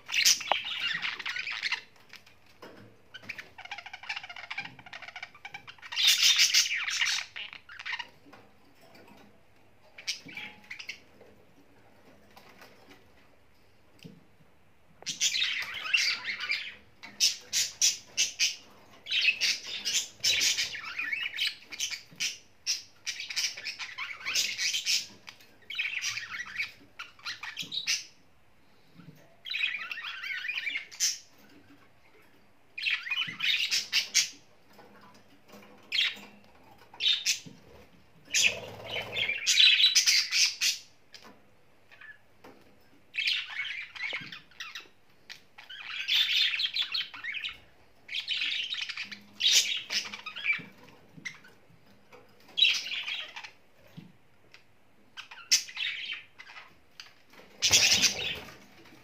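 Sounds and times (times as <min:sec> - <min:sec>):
budgerigars chattering and squawking: 0:00.0 - 0:02.0, 0:03.2 - 0:08.2, 0:15.1 - 0:28.2, 0:32.8 - 0:34.4, 0:37.0 - 0:41.3, 0:43.2 - 0:51.6, 0:52.5 - 0:53.6, 0:55.2 - 0:58.9.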